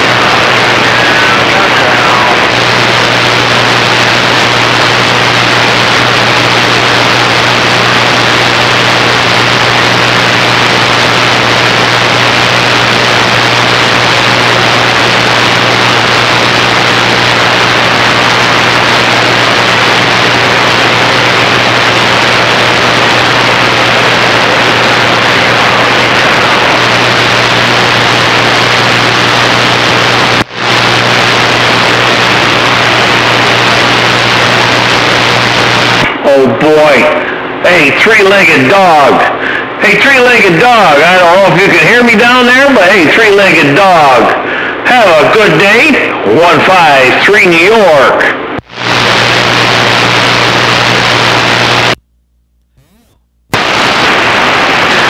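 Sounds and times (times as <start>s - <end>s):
radio static hissing: 0.0s - 55.0s
low steady hum: 48.5s - 55.0s.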